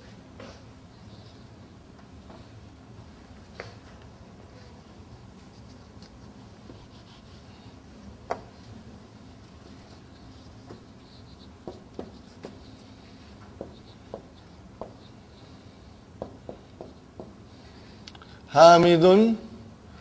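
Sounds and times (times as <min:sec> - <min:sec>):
marker tapping whiteboard: 0:08.3 - 0:08.6, 0:10.6 - 0:10.9, 0:11.6 - 0:15.0, 0:16.2 - 0:17.4
marker squeaking on whiteboard: 0:09.6 - 0:17.3.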